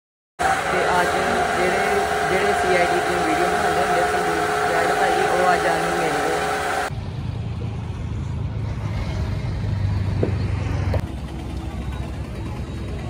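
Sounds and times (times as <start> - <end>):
low rumble of road noise: 0.4 - 13.0
road traffic engines: 0.4 - 13.0.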